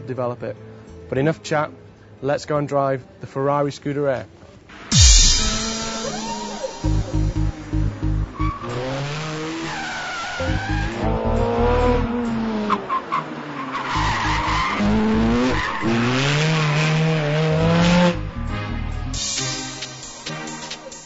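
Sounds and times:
sports car engine revving: 5.0 - 19.1.

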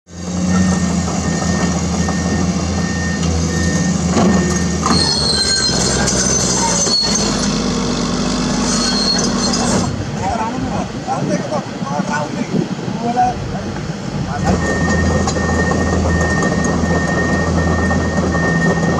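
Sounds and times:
bulldozer diesel engine running: 0.1 - 18.9
excavator diesel engines running: 0.1 - 18.9
steel tracks squealing: 0.4 - 10.3, 14.3 - 18.9.

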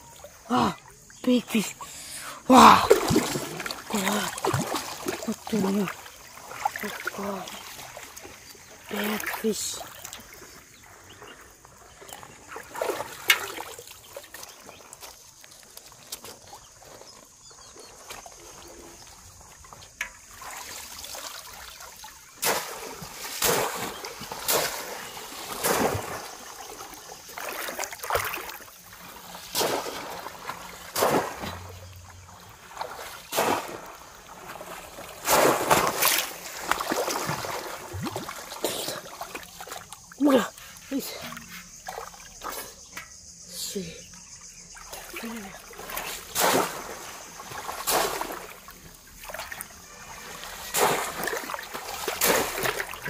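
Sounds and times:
river water splashing: 0.0 - 53.0.

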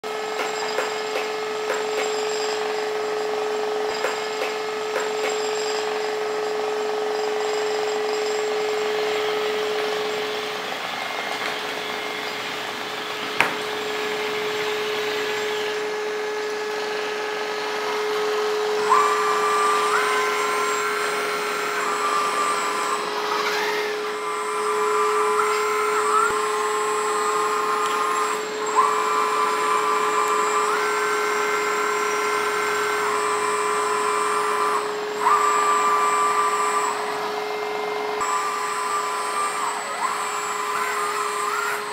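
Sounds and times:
hydraulic pump whining: 0.0 - 41.9
whining tones stepping in pitch: 13.2 - 41.9.

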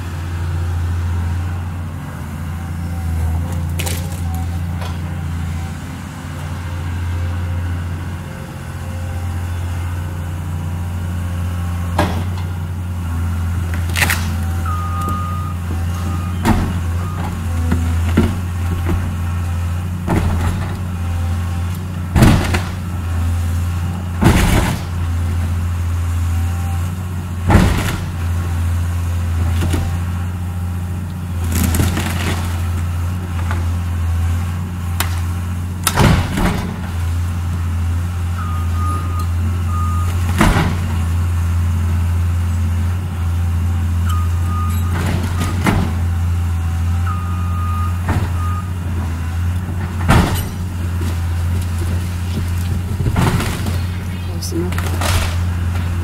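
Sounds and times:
excavator diesel engine: 0.0 - 56.0
timber cracking and crashing: 3.5 - 5.0, 13.8 - 14.4, 22.1 - 22.9, 31.4 - 33.6, 35.8 - 37.0, 49.9 - 56.0.

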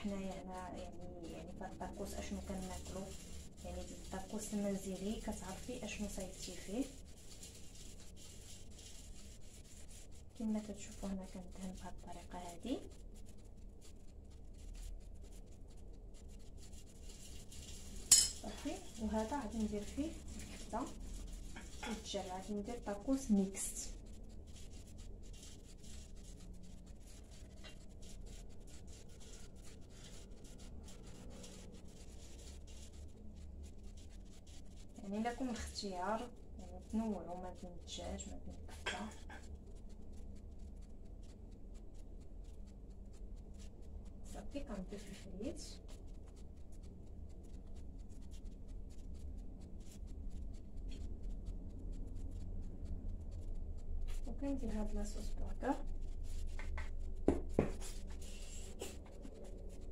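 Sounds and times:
low steady hum: 0.0 - 59.9
hands rustling and tapping food: 56.4 - 58.1.

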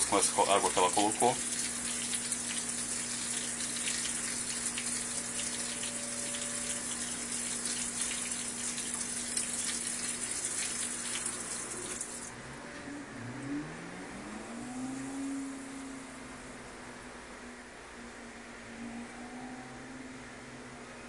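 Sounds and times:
water spraying onto wet clothes: 0.0 - 12.3
washing machine low hum: 0.0 - 21.0.

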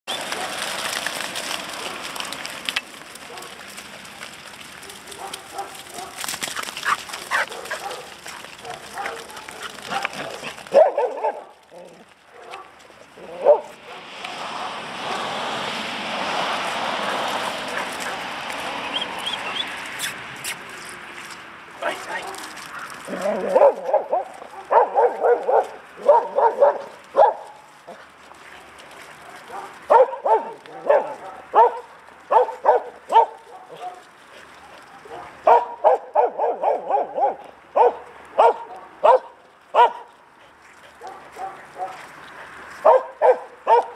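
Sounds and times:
dog barking: 3.3 - 3.6, 4.8 - 6.2, 6.8 - 11.6, 12.3 - 14.1, 22.1 - 27.6, 29.2 - 34.1, 35.0 - 40.1, 41.0 - 42.0, 42.8 - 43.9.

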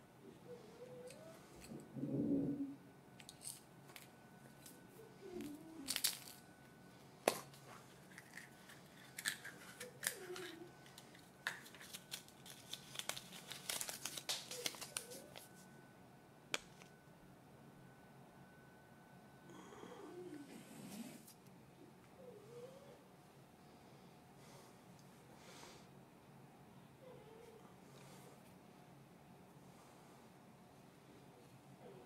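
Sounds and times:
foil wrapper crinkling: 5.8 - 6.4, 7.9 - 15.6.

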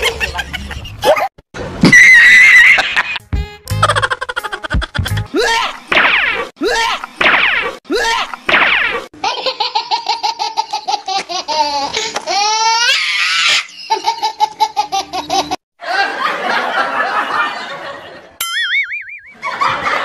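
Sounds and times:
high-pitched repeated laugh: 0.0 - 1.3, 2.4 - 5.8, 9.2 - 18.0
wobbling cartoon tone: 18.4 - 19.4.

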